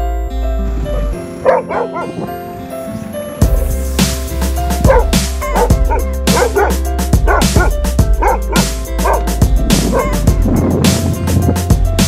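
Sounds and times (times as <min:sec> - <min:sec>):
dog barking: 0:01.4 - 0:02.2, 0:04.8 - 0:10.3
music with steady beat: 0:03.4 - 0:12.0.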